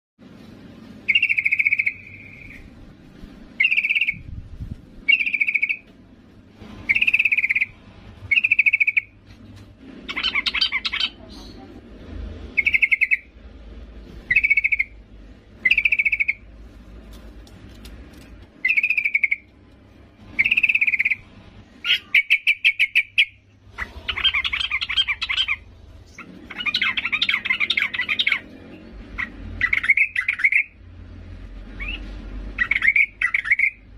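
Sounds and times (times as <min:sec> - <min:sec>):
bulbul calling: 0:01.1 - 0:02.7, 0:03.6 - 0:04.3, 0:05.1 - 0:05.9, 0:06.9 - 0:09.2, 0:12.6 - 0:13.3, 0:14.3 - 0:15.0, 0:15.6 - 0:16.5, 0:18.6 - 0:19.5, 0:20.4 - 0:21.2, 0:21.8 - 0:28.5, 0:29.2 - 0:30.8, 0:32.6 - 0:33.8
harsh bird chattering: 0:01.1 - 0:02.7, 0:03.6 - 0:04.3, 0:05.1 - 0:05.8, 0:06.9 - 0:09.2, 0:10.1 - 0:11.8, 0:12.5 - 0:13.3, 0:14.3 - 0:15.0, 0:15.6 - 0:16.5, 0:18.6 - 0:19.5, 0:20.4 - 0:21.2, 0:21.8 - 0:28.5, 0:29.2 - 0:30.8, 0:32.6 - 0:33.9.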